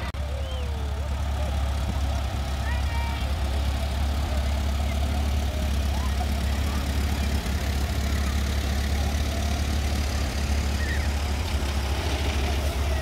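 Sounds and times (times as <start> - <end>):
tractor engines driving past: 0.0 - 13.0.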